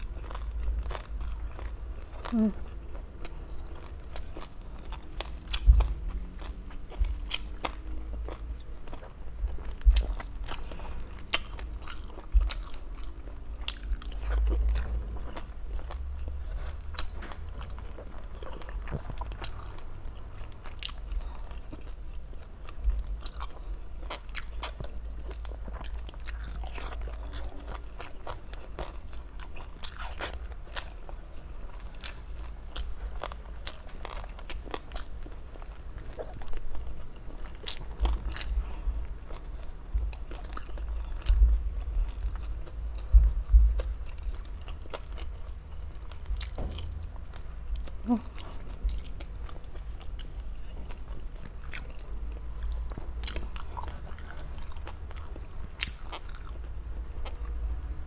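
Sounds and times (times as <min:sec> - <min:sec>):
person chewing crunchy food: 0:00.0 - 0:58.0
low thumps: 0:42.9 - 0:44.2.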